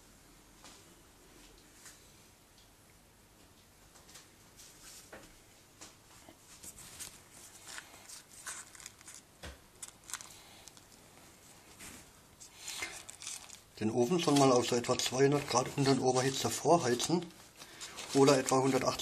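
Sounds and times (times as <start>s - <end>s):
paper and pastry crinkling: 6.5s - 19.0s.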